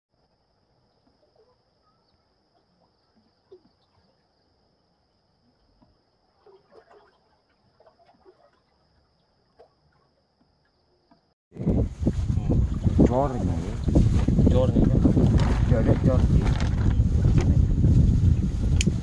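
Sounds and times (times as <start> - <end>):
soft ticks and chirps: 0.2 - 6.6, 7.3 - 11.4.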